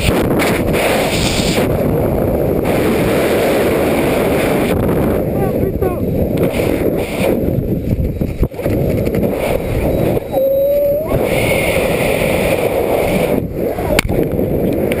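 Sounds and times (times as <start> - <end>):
wind buffeting microphone: 0.0 - 15.0
short steady tone: 10.3 - 11.1.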